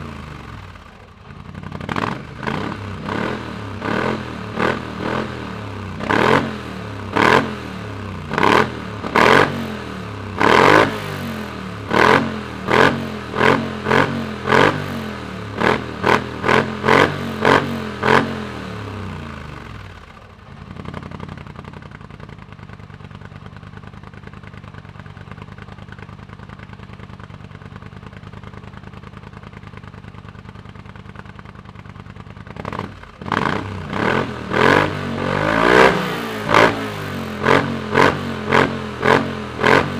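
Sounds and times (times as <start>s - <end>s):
atv engine revving: 0.0s - 22.1s, 31.9s - 39.9s
atv engine idling: 0.0s - 39.9s.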